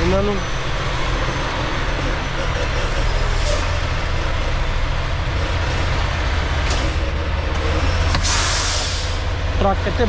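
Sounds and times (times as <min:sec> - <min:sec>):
truck diesel engine rumbling: 0:00.0 - 0:10.0
high air hisses: 0:08.2 - 0:09.2.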